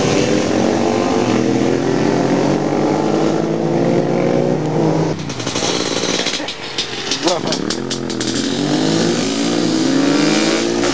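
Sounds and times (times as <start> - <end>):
car engine accelerating: 0.0 - 10.9
motorcycle engines: 0.0 - 10.9.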